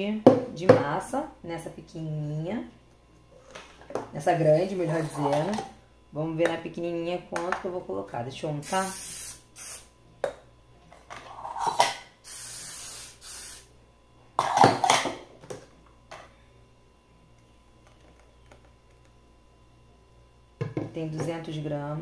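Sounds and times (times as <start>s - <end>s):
aerosol spray hissing: 8.6s - 9.9s, 12.2s - 13.7s.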